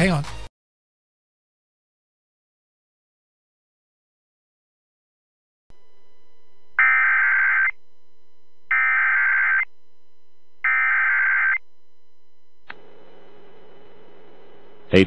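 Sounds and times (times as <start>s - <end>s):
faint steady hum: 5.7s - 15.0s
warbling digital data tones: 6.8s - 7.8s, 8.7s - 9.7s, 10.6s - 11.6s.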